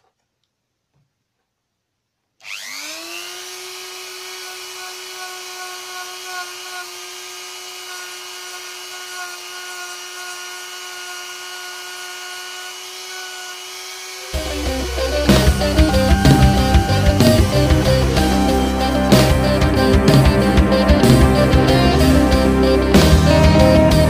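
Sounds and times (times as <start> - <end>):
rotary tool whining: 2.4 - 24.0.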